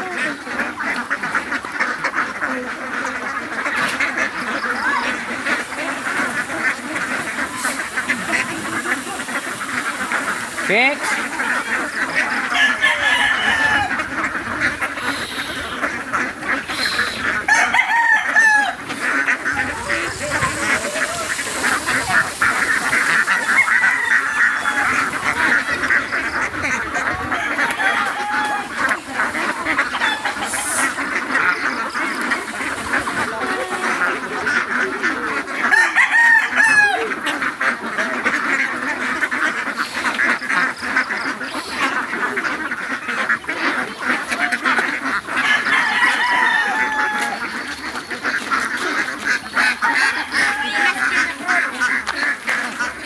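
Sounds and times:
ducks quacking: 0.0 - 53.0.

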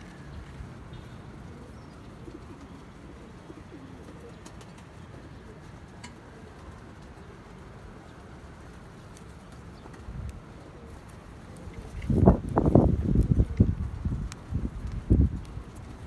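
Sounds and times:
pigeons cooing: 0.7 - 8.4, 9.1 - 14.0.

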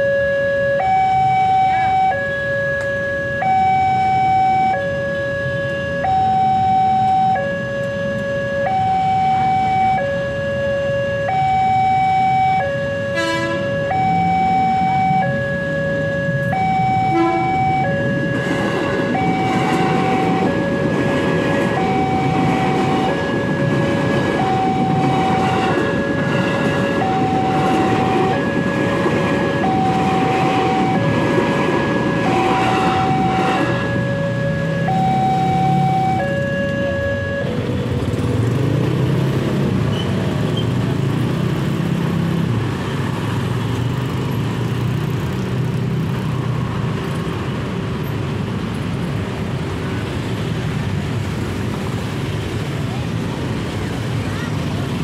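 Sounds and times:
two-tone crossing alarm: 0.0 - 38.2
electric train rumbling: 0.0 - 55.0.

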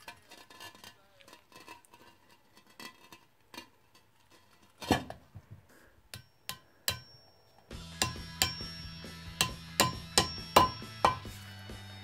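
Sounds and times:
hammer scraping on concrete: 0.0 - 5.2.

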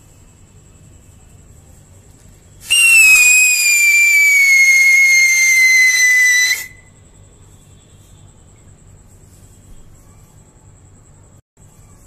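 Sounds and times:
shrill firework siren whistle: 2.6 - 6.9.

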